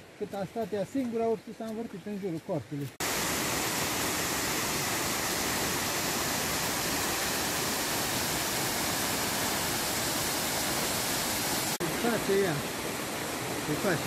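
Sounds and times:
waterfall rushing: 2.9 - 14.0.

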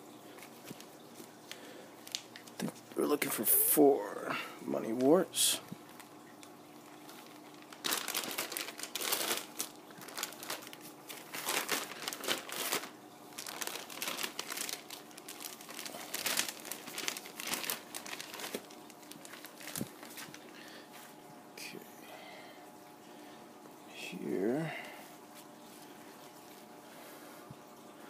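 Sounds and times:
plastic bags crinkling: 0.4 - 3.2, 4.8 - 21.0.

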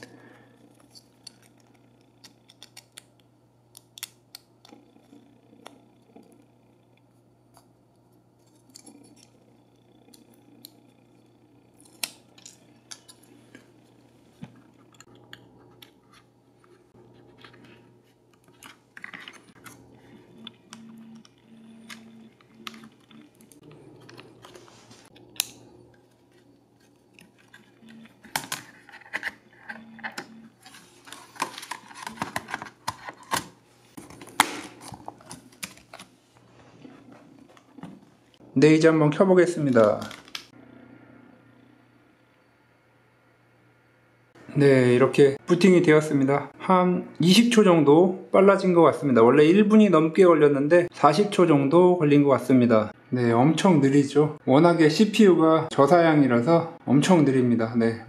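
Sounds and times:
hands handling small parts: 21.8 - 36.1.

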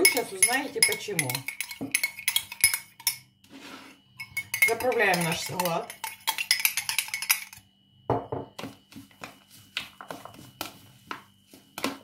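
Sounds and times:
metal spoon clicking against glass: 0.0 - 3.2, 4.2 - 7.6.

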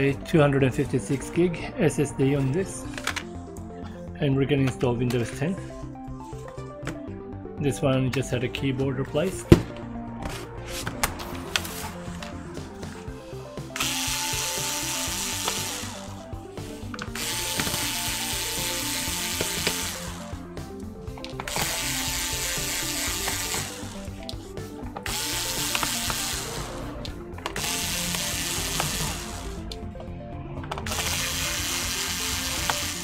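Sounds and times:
background music: 0.0 - 33.0
electric screwdriver whining: 13.8 - 20.4, 21.2 - 29.9, 30.7 - 33.0.

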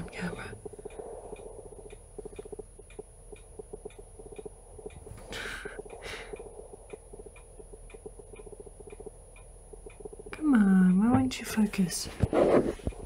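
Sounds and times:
camera autofocus motor ticking: 0.6 - 5.1, 5.8 - 10.4.

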